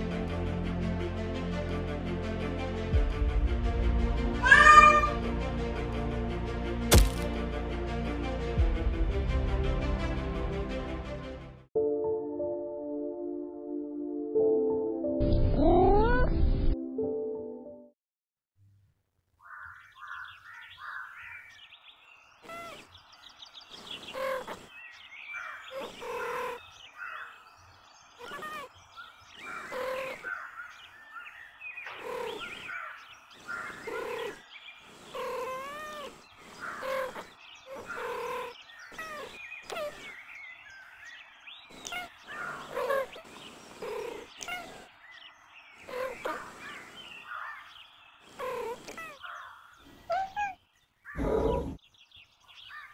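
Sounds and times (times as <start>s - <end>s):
cat meowing: 4.4s - 5.2s.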